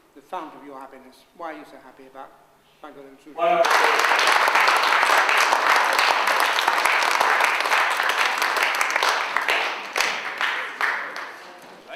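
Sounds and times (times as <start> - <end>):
audience applauding: 3.6 - 11.6.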